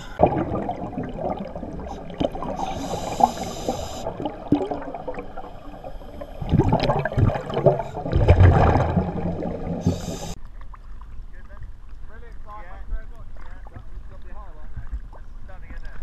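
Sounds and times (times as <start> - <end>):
regulator inhale hiss: 0.0 - 0.2, 2.0 - 4.3, 5.4 - 6.5, 9.8 - 10.4
exhaled bubbles gurgling: 0.0 - 10.4.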